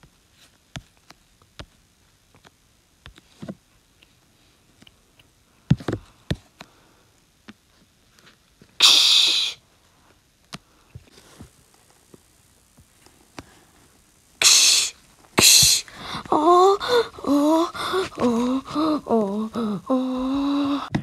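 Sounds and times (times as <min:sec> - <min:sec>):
faint clicks and taps: 0:00.0 - 0:06.8
person breathy bursts: 0:08.8 - 0:09.6, 0:14.4 - 0:21.0.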